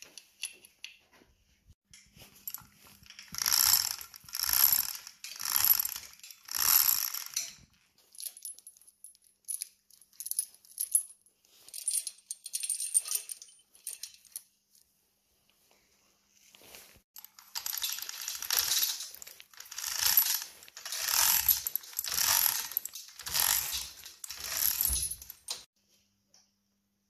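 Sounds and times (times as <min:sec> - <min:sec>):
steel chain rattling: 0:02.4 - 0:07.7, 0:17.2 - 0:25.7
chain links clinking: 0:02.4 - 0:14.4, 0:17.2 - 0:25.7.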